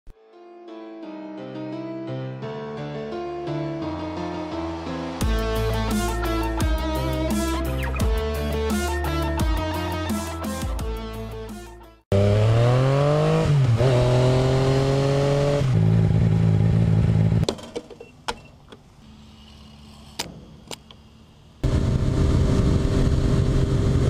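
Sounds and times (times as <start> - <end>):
motorcycle engine accelerating: 12.1 - 17.5, 21.6 - 24.0.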